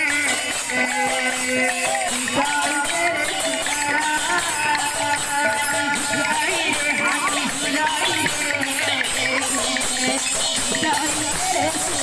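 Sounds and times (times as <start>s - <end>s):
barrel drum: 0.0s - 12.0s
metallic hand percussion jingle: 0.0s - 12.0s
woman singing into microphone: 2.2s - 12.0s.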